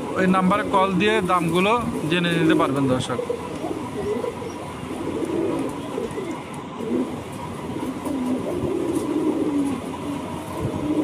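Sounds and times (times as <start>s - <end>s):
pigeons cooing: 0.0s - 11.0s.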